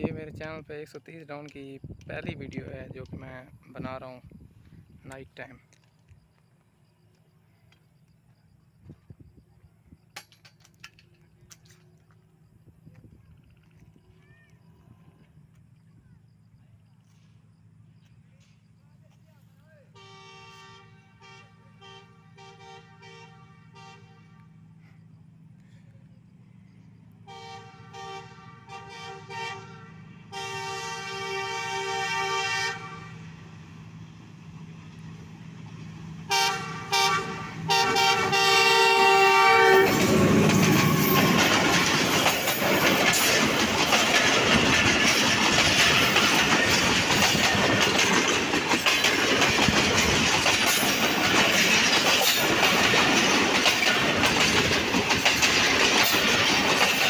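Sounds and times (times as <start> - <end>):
locomotive horn toots and blasts: 19.9 - 24.6, 27.2 - 33.3, 36.3 - 41.4
train wheels rushing on rails: 24.5 - 57.0.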